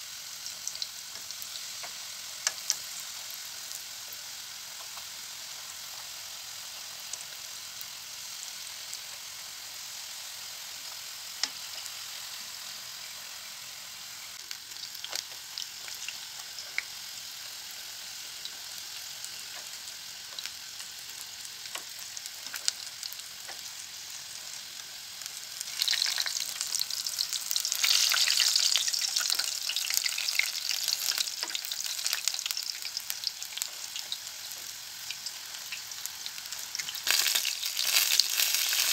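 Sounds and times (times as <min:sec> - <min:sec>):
pastries sizzling in hot oil: 0:00.0 - 0:38.9
tongs clicking against pan: 0:01.2 - 0:02.8.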